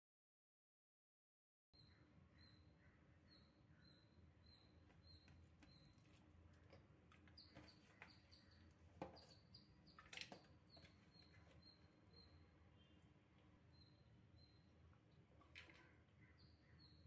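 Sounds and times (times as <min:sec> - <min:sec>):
faint high chirp: 0:07.4 - 0:14.8.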